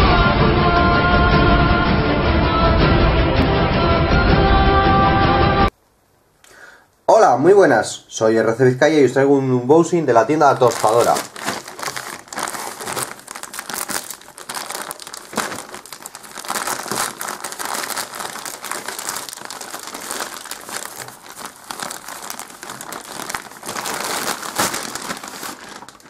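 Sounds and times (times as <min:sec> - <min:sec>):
plastic bag crinkling: 0:10.0 - 0:26.0.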